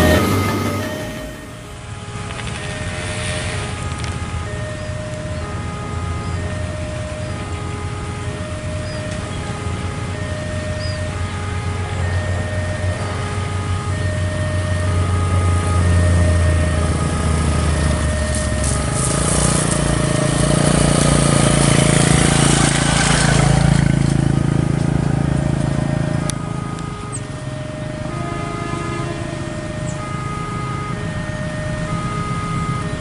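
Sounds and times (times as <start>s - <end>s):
vehicle passing with tyre hiss: 2.4s - 3.8s, 18.6s - 25.5s.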